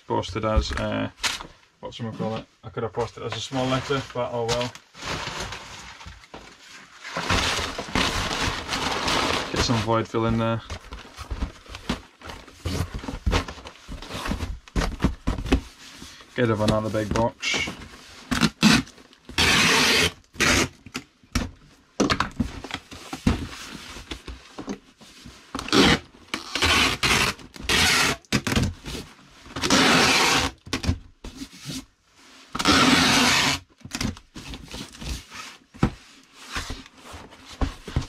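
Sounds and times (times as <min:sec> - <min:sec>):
cardboard knocks and rustles: 0:10.2 - 0:15.8, 0:33.8 - 0:38.0
tape gun pulling packing tape: 0:18.3 - 0:20.8, 0:25.7 - 0:28.6, 0:29.6 - 0:30.6, 0:32.6 - 0:33.6.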